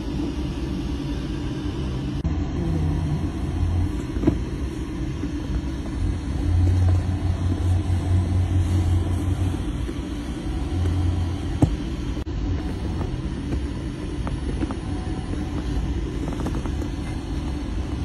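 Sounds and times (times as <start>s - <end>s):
machinery low drone: 0.0s - 18.0s.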